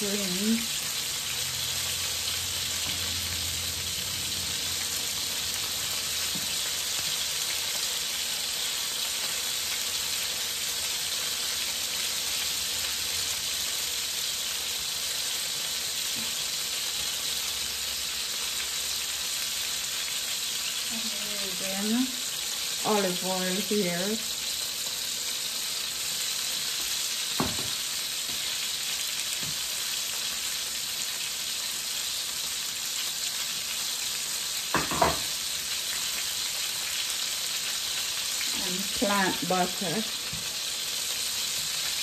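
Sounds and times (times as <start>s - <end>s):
fish sizzling in a frying pan: 0.0s - 42.0s.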